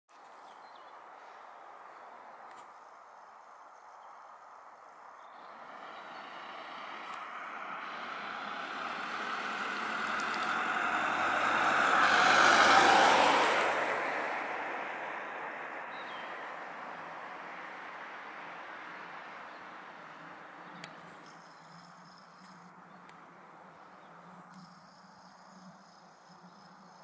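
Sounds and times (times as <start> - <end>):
vehicle passing by: 5.2 - 22.7.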